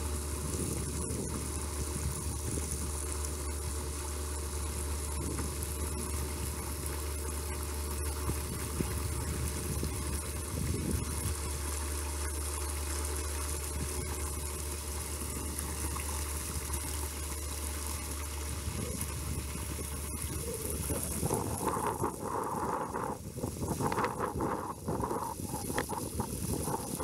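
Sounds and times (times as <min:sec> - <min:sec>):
low hum: 0:00.0 - 0:27.0
water pouring and splashing: 0:00.0 - 0:27.0
wind buffeting microphone: 0:08.5 - 0:11.3, 0:18.7 - 0:27.0.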